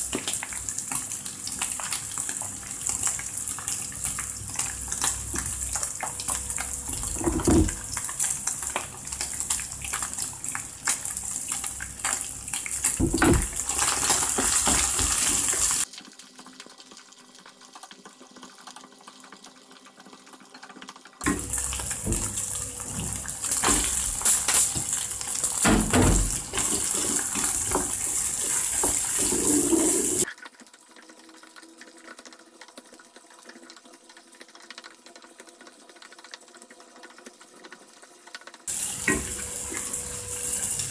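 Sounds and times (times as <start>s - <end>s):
meat sizzling in a frying pan: 0.0s - 15.9s, 21.2s - 30.3s, 38.7s - 40.9s.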